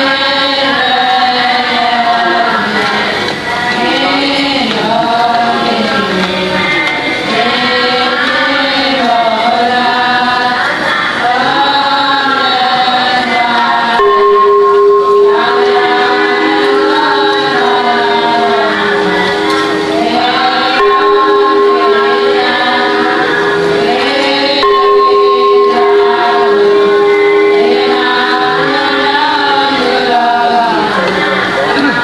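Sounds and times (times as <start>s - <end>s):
voices singing a chant: 0.0s - 32.0s
steady held tone: 6.8s - 32.0s.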